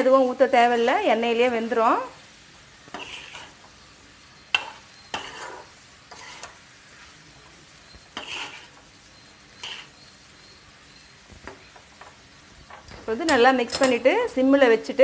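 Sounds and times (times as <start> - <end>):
faint sizzle of frying: 0.0 - 15.0
metal spatula scraping a pan: 2.8 - 14.0
spatula tapping on pan: 4.5 - 5.3.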